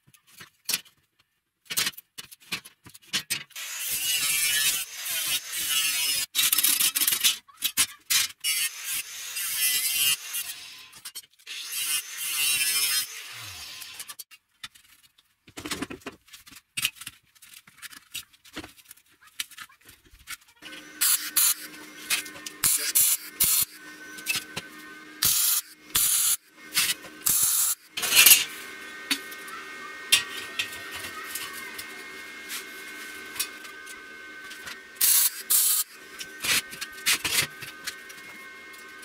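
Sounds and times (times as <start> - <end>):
machine hum: 20.6 - 39.0.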